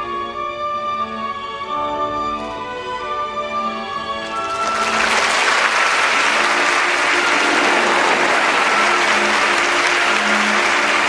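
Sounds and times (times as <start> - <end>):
faint orchestra playing: 0.0 - 11.0
audience applauding: 4.2 - 11.0.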